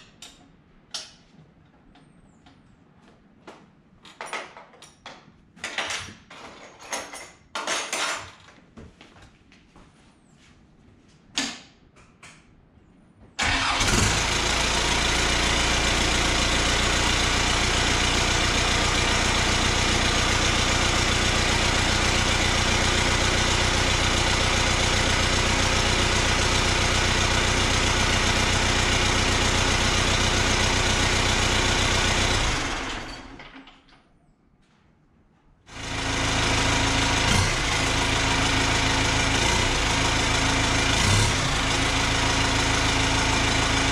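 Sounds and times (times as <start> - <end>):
diesel engine idling: 13.4 - 33.4, 35.7 - 43.9.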